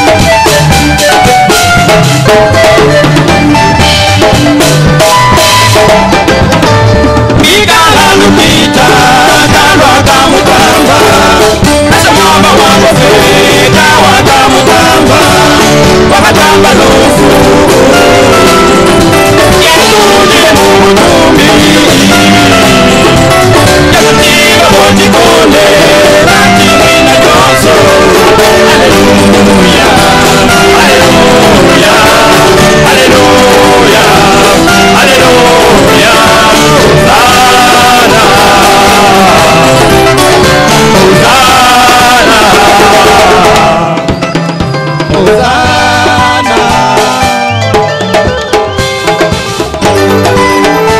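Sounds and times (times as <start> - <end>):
band playing: 0.0 - 50.9
men singing church song: 7.4 - 44.3, 45.1 - 47.7.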